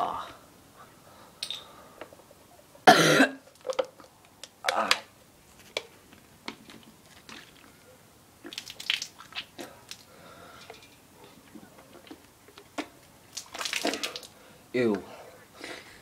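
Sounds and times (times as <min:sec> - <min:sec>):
plastic bottle crackling: 0:03.4 - 0:05.9, 0:08.4 - 0:10.1, 0:12.0 - 0:14.4.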